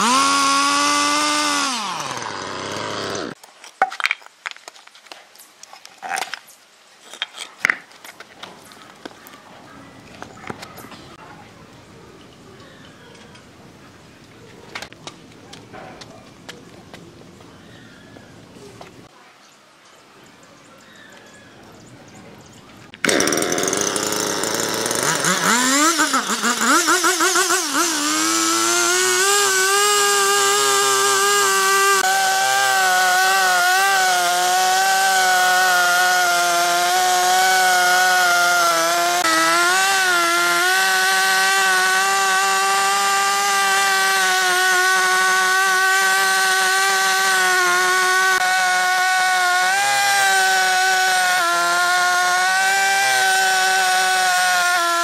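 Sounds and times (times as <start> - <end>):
chainsaw revving and cutting: 0.0 - 3.4, 22.9 - 55.0.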